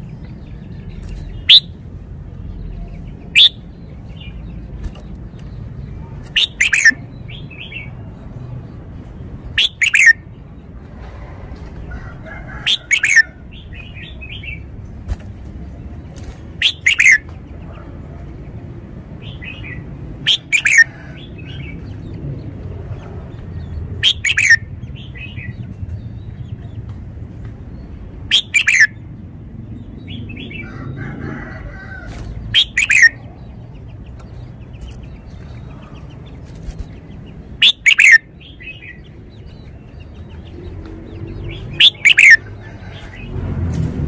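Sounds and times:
soft bird twittering: 0.0s - 1.8s, 2.4s - 8.1s, 9.4s - 10.3s, 12.6s - 14.7s, 16.6s - 17.8s, 19.3s - 21.9s, 23.5s - 26.8s, 27.7s - 29.0s, 32.0s - 43.3s
bird singing phrases: 0.0s - 10.8s, 12.0s - 31.0s, 31.7s - 43.3s.

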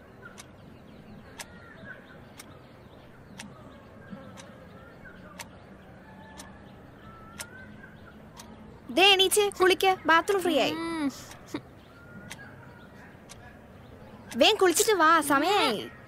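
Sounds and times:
faint bird chirps: 0.0s - 16.0s
alarm clock ticking: 6.3s - 7.6s.

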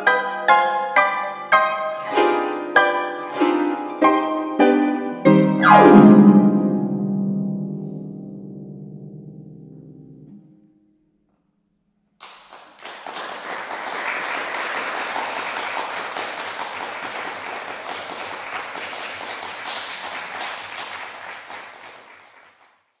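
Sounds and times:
audience applauding: 12.2s - 23.0s.

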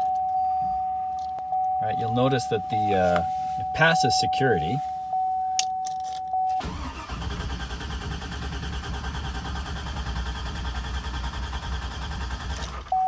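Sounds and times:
warning chime tone: 0.0s - 6.7s
starter cranking engine: 6.6s - 13.0s.

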